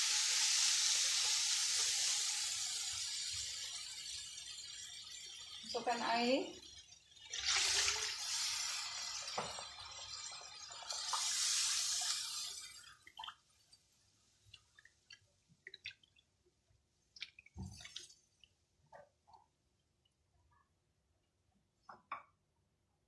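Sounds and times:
water hissing in hot wok: 0.0 - 13.1.

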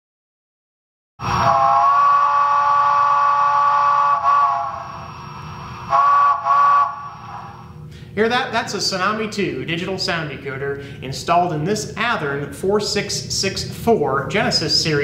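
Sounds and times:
steam locomotive whistle blasts: 1.2 - 7.8.

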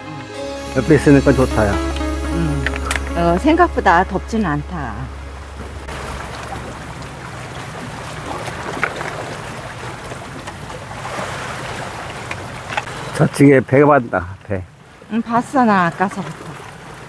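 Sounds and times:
sea noise: 0.0 - 13.2.

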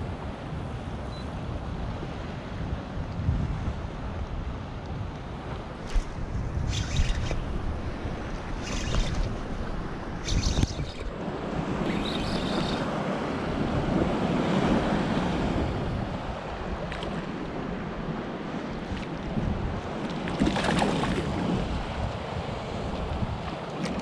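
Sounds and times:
wind buffeting microphone: 1.5 - 24.0
sea water lapping: 5.6 - 24.0
small splash in water: 20.1 - 21.3.

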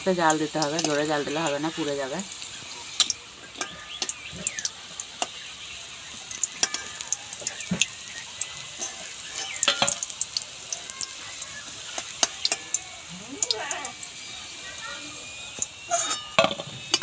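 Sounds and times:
deep-frying sizzle with crackles: 0.0 - 17.0
metal spatula knocking pan: 6.5 - 8.0, 8.8 - 10.3, 15.9 - 17.0.

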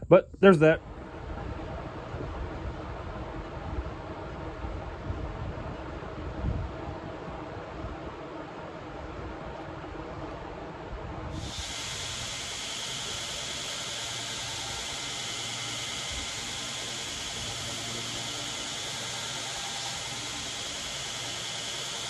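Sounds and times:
low motor hum: 0.8 - 22.0
belt grinder hissing on metal: 11.3 - 22.0.

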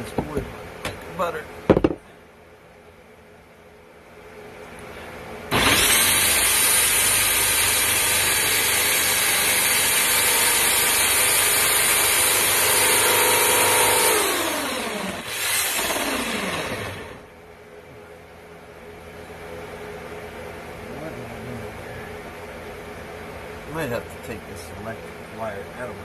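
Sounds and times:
drill boring through wood: 5.5 - 17.3.

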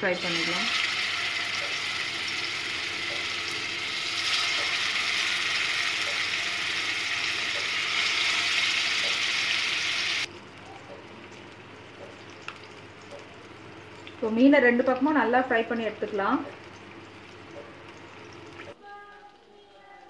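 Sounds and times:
fish sizzling in hot oil: 0.0 - 10.3.

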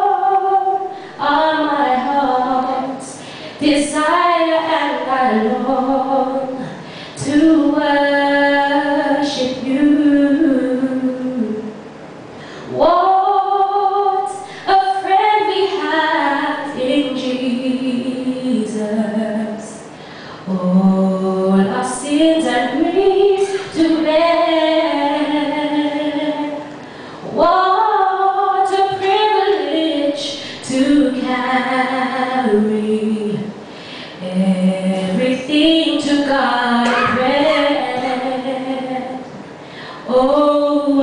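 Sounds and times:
woman singing a cappella: 0.0 - 11.8, 12.6 - 41.0
woman breathing: 0.9 - 1.2, 3.2 - 3.6, 12.3 - 12.8, 20.0 - 20.5, 26.8 - 27.3, 33.7 - 34.2, 39.6 - 40.1.

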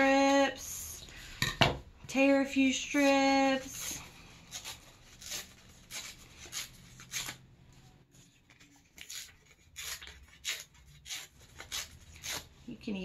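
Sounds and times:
paper tearing: 3.6 - 7.4, 8.2 - 12.6.

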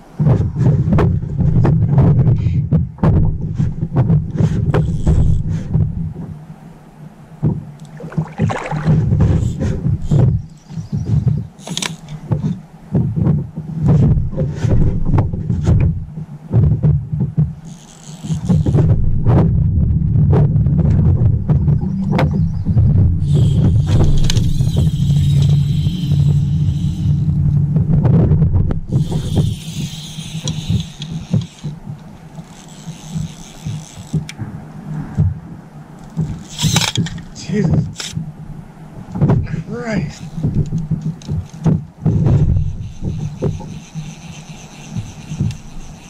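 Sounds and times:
dull low knocks: 0.1 - 6.4, 7.4 - 11.5, 12.2 - 45.8
low thumps through boat hull: 0.2 - 6.3, 12.3 - 17.6, 18.6 - 25.6, 27.3 - 29.0
fishing reel drag buzzing: 4.7 - 5.7, 9.2 - 12.3, 17.6 - 18.9, 23.2 - 27.7, 28.9 - 34.3, 36.0 - 37.1, 40.0 - 40.6, 42.4 - 46.0.

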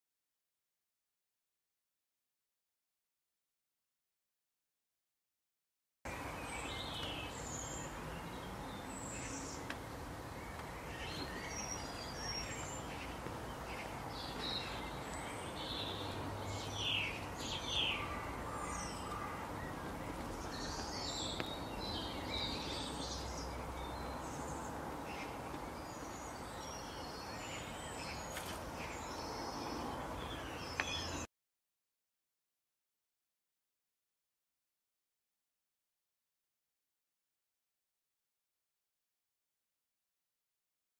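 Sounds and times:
small birds chirping: 6.1 - 31.3.

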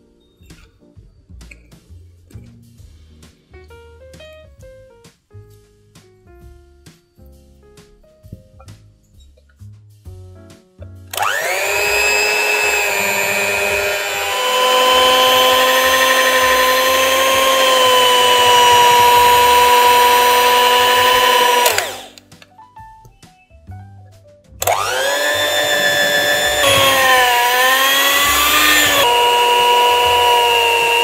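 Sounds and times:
electric mixer kneading dough: 11.1 - 22.2, 24.6 - 31.0.

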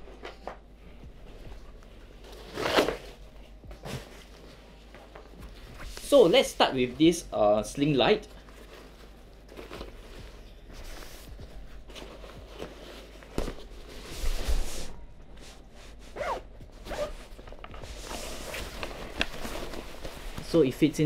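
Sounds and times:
fabric rustling: 8.1 - 20.8
zipper being pulled open: 16.1 - 17.2.

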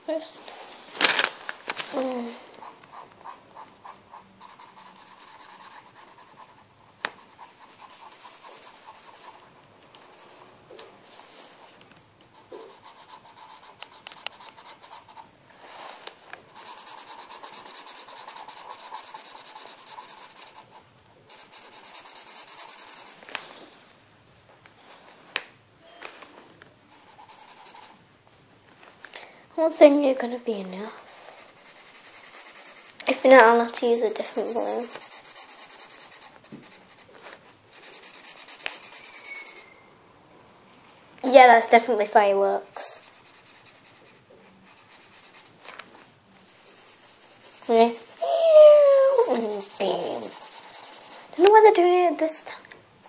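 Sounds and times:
felt-tip pen scratching on paper: 2.6 - 9.4, 12.4 - 15.3, 16.5 - 23.2, 26.9 - 28.0, 31.0 - 37.1, 37.7 - 39.7, 42.7 - 45.6, 46.4 - 52.4.

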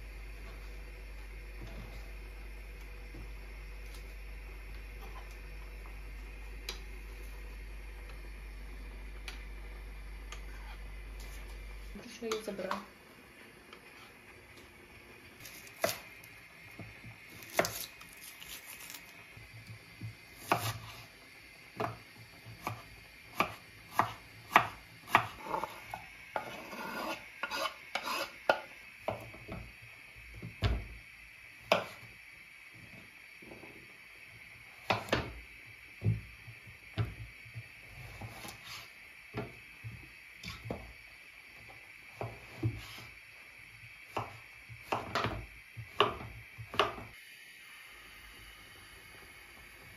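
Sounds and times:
faint steady hiss: 0.0 - 49.9
knife chopping on wooden board: 17.4 - 17.9, 20.4 - 21.0, 21.8 - 22.0, 22.6 - 29.3, 31.7 - 32.0, 34.8 - 35.3, 44.1 - 47.1
onion scraped into frying pan: 25.2 - 28.6.

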